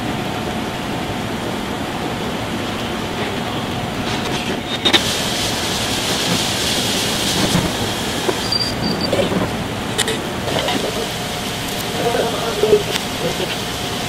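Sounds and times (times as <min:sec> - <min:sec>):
busy kitchen noise: 0:02.6 - 0:14.0
bright hiss: 0:04.9 - 0:09.6.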